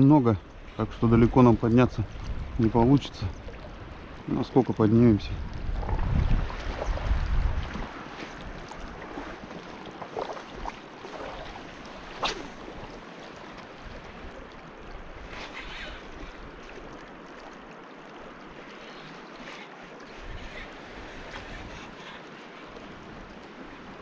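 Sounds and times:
rushing river water: 0:00.0 - 0:24.0
wind on microphone: 0:00.6 - 0:04.3, 0:05.0 - 0:09.4, 0:20.1 - 0:24.0.

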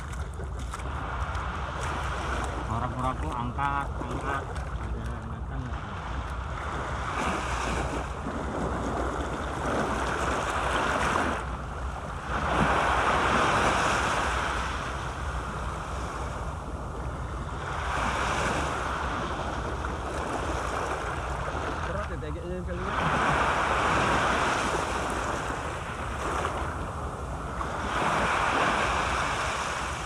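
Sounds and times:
wind rumble on microphone: 0:00.0 - 0:30.0.

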